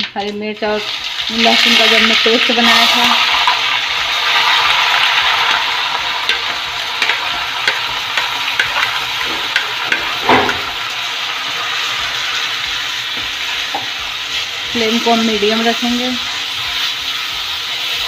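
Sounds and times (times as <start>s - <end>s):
paste sizzling in hot oil: 0.6s - 18.0s
spoon knock: 6.2s - 10.7s
steel spoon clicking on pan: 6.2s - 10.7s.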